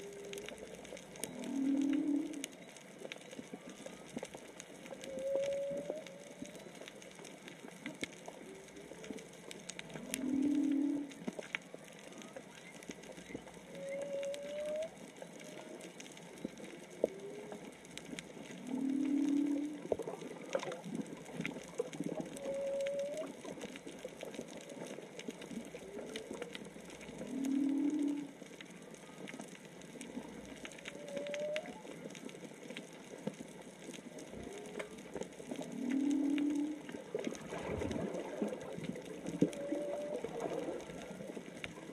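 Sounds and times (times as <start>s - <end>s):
whale moaning underwater: 0.0s - 2.6s, 3.5s - 7.0s, 8.3s - 32.4s, 34.1s - 41.9s
whale upswept call: 0.0s - 4.3s, 4.9s - 7.0s, 9.9s - 17.7s, 18.5s - 20.7s, 22.1s - 23.8s, 24.5s - 29.3s, 30.6s - 32.1s, 34.2s - 37.0s, 38.0s - 41.2s.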